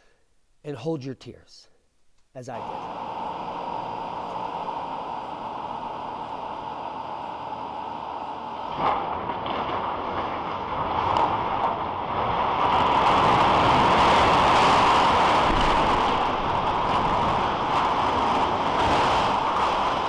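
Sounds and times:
structure collapsing with rumbling: 5.7 - 20.0.

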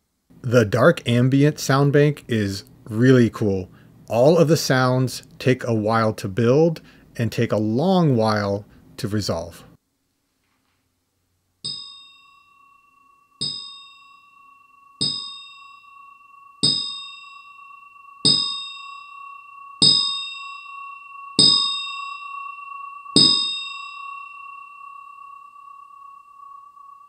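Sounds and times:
high droning pad: 12.2 - 27.0
electronic drum strikes: 13.4 - 13.8, 15.0 - 15.4, 16.6 - 17.1, 18.2 - 18.8, 19.8 - 20.2, 21.4 - 21.8, 23.2 - 23.6.

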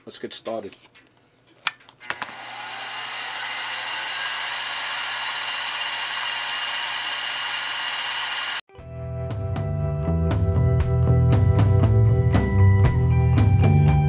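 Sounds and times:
drill bit cutting brass: 2.2 - 8.6
milling machine spindle whine: 2.2 - 8.6.

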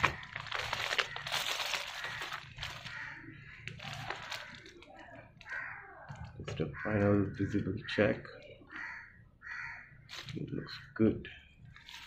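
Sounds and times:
plastic bag crinkling: 0.0 - 6.4, 10.1 - 10.4, 11.7 - 12.0.

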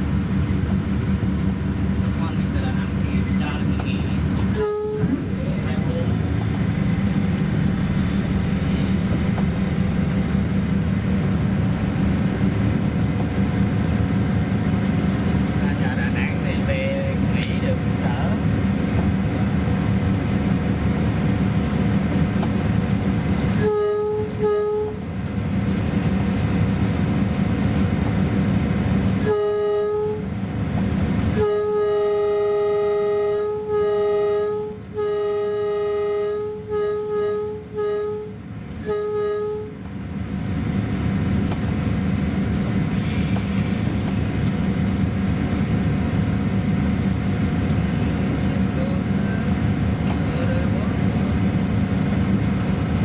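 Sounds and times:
train rumbling on rails: 0.0 - 53.0
train horn blasts: 4.5 - 5.4, 23.5 - 25.1, 29.2 - 30.4, 31.3 - 39.8.

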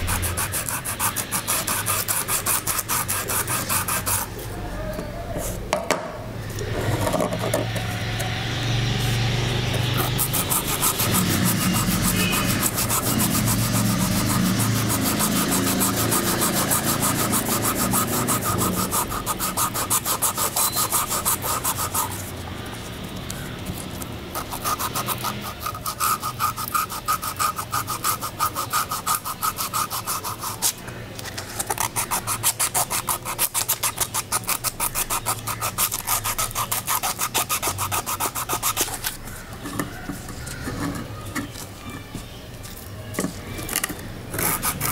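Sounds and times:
abrasive scrubbing metal blades: 9.9 - 22.2.

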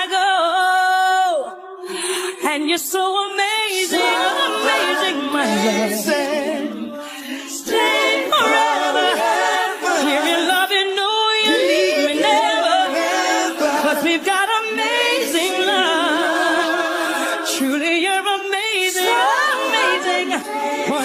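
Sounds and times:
woman singing soul ballad: 0.0 - 4.0.

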